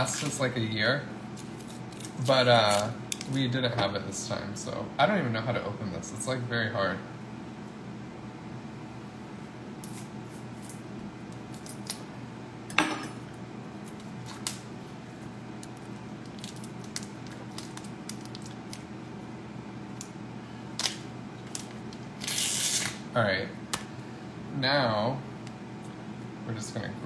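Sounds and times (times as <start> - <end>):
plastic wrapping crinkling: 15.6 - 18.9.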